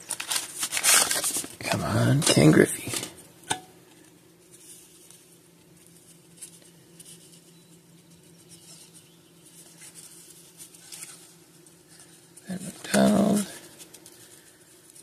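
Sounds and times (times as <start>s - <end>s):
cards rustling: 0.0s - 3.1s, 8.1s - 15.0s.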